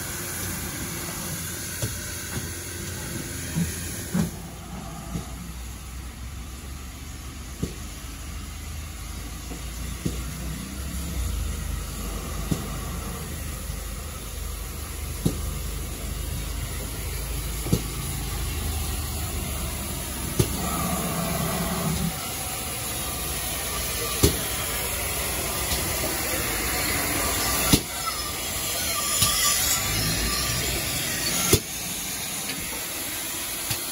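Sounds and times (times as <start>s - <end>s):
hiss of steam: 0.0s - 33.9s
steam locomotive rumbling: 0.0s - 33.9s.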